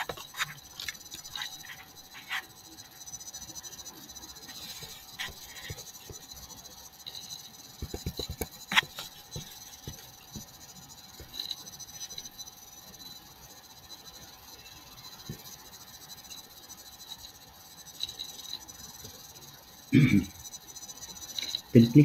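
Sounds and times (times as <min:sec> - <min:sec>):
electronic hiss and hum: 0:00.0 - 0:22.0
computer mouse clicks: 0:07.0 - 0:10.5.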